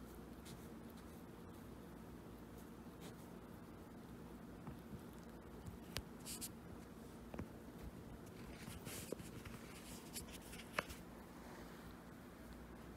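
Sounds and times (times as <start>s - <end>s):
scratchy rustling on fabric: 7.8s - 11.7s.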